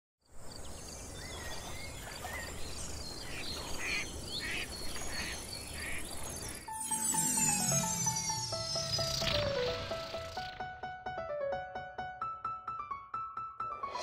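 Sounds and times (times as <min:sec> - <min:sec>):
birds chirping and calling: 0:00.6 - 0:06.7, 0:08.7 - 0:10.6
high insect drone: 0:06.5 - 0:10.6.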